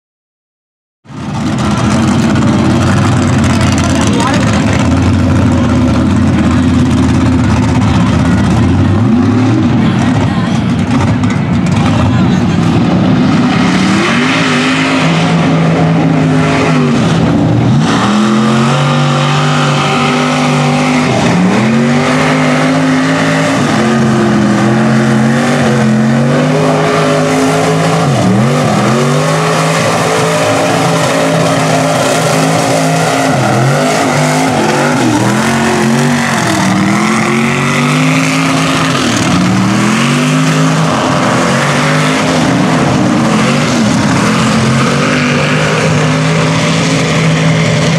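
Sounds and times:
truck engines revving: 1.1s - 47.9s.

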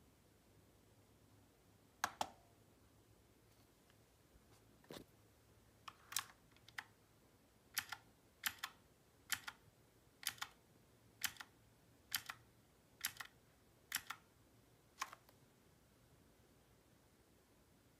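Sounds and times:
mechanical keyboard clicks: 5.9s - 6.9s, 7.8s - 9.6s, 10.2s - 10.6s, 11.2s - 11.5s, 12.1s - 12.4s, 13.0s - 14.2s, 15.0s - 15.3s.

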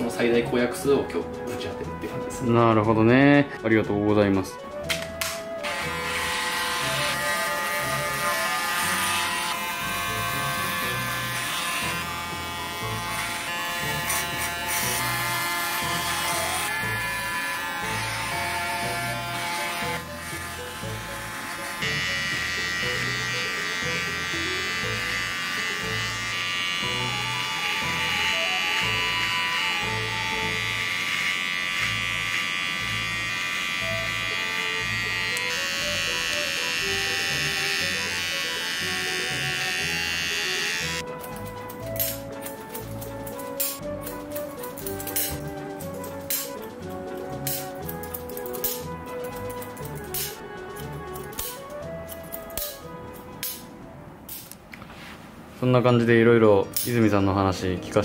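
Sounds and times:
electric hair clipper buzzing: 5.2s - 41.0s
background music with bass line: 32.8s - 53.6s.

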